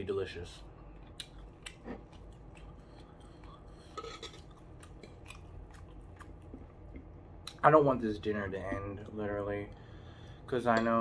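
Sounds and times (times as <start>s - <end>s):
man chewing: 0.7s - 7.6s.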